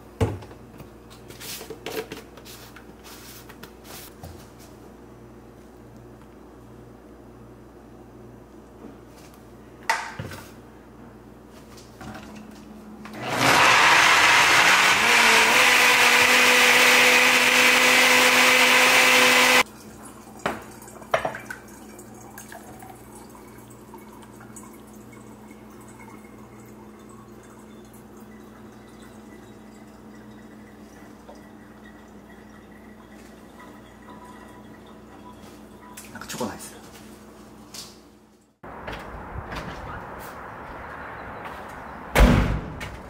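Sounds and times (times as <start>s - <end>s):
blender running: 13.1s - 19.6s.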